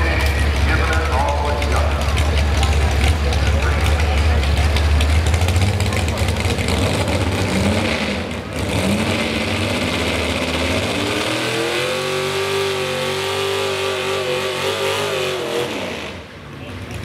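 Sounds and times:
supercharged truck engine revving: 0.0s - 17.0s.

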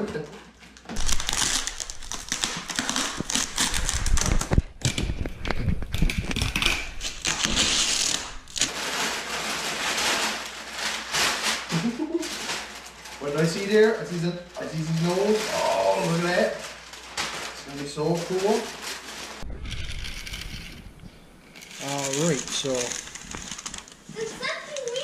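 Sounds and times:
packing paper crackling and rustling: 0.5s - 25.0s
packing tape torn off: 0.8s - 13.3s, 21.5s - 25.0s.

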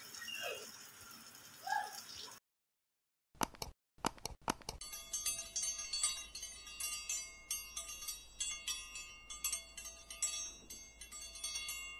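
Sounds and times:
tinkling chimes: 4.8s - 11.9s.

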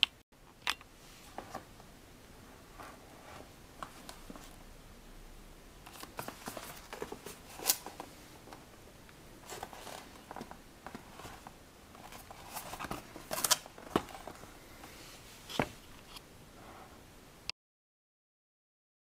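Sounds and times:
cardboard box being handled: 5.9s - 8.1s.

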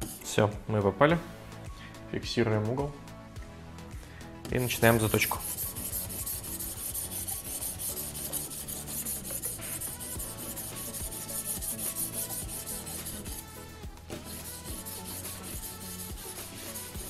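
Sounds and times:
sharpening stone rubbing on blade: 4.6s - 17.0s.

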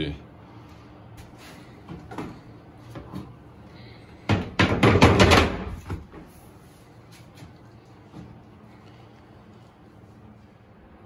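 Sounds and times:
wooden panel knocking and clattering: 4.3s - 6.0s.

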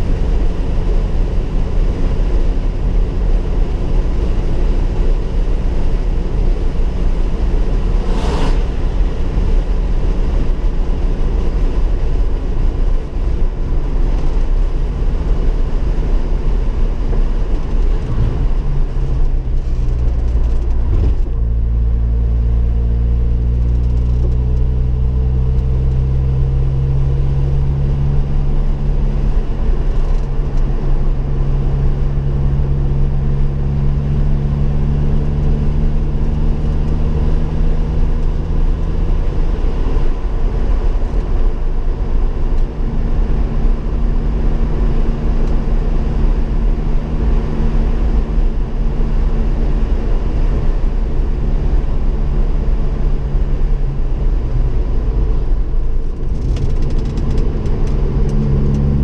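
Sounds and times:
car engine accelerating: 0.0s - 59.0s
road noise inside car: 0.0s - 59.0s.

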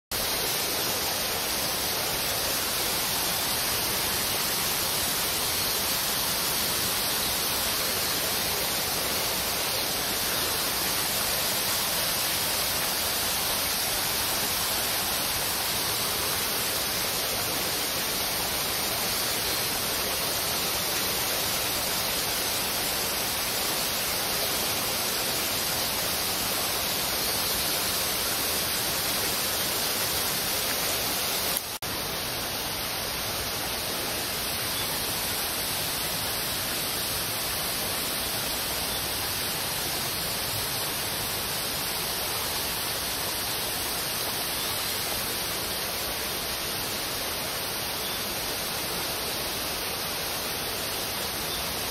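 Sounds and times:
flowing water: 0.1s - 51.9s.

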